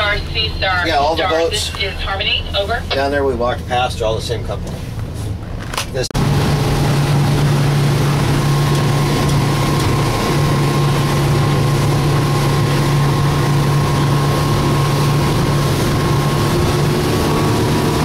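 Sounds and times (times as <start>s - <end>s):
boat wake rushing: 0.0s - 3.8s, 4.7s - 18.0s
outboard motor running: 6.2s - 18.0s.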